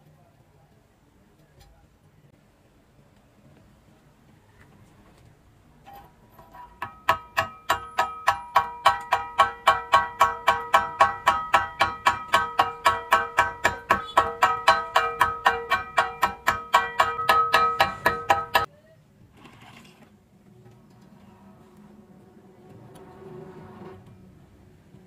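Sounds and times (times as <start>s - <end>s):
chipping hammer striking steel: 6.8s - 18.7s.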